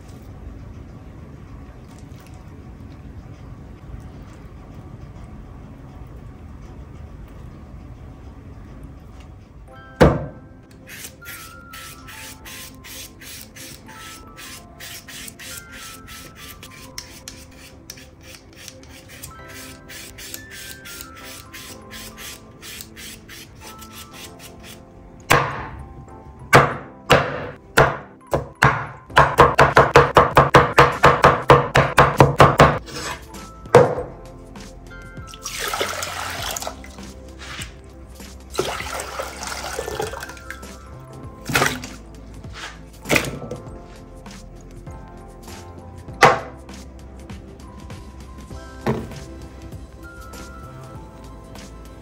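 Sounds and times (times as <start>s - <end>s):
soft background music: 0.0s - 52.0s
vegetable peeler scraping potatoes: 10.8s - 24.8s, 32.8s - 33.3s
knife chopping on wooden board: 26.6s - 33.2s, 33.8s - 34.1s, 46.2s - 46.6s.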